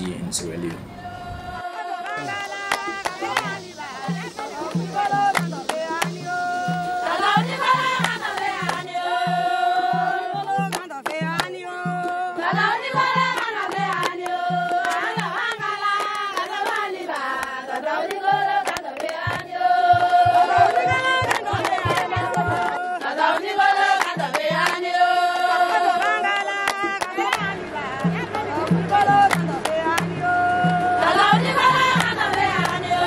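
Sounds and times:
person singing: 0:01.3 - 0:12.7
quick drum beat: 0:02.2 - 0:16.8, 0:18.0 - 0:22.9.

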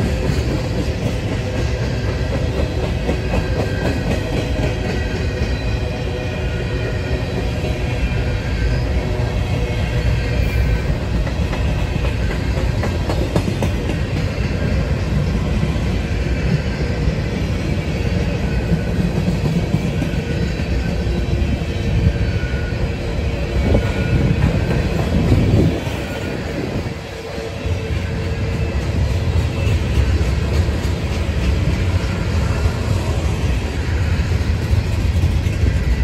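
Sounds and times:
steel wheels rumbling on rail: 0:00.0 - 0:36.0
wheels clacking over rail joints: 0:10.7 - 0:15.5.

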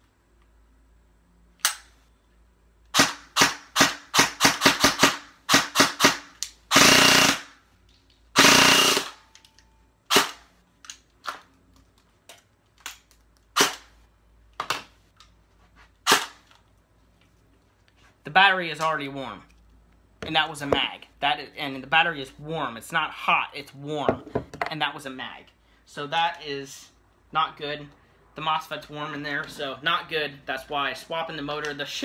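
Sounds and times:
airsoft gun shooting: 0:02.9 - 0:07.6.

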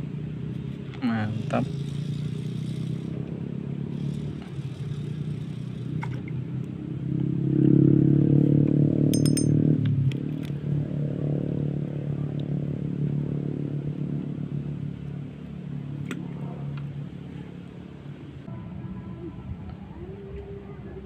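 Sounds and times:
small engine running: 0:00.5 - 0:07.0.

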